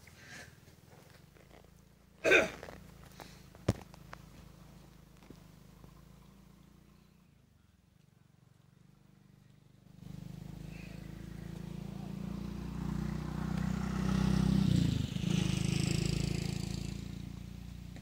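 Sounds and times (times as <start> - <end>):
vehicle engine passing by: 2.6 - 7.4, 8.6 - 18.0.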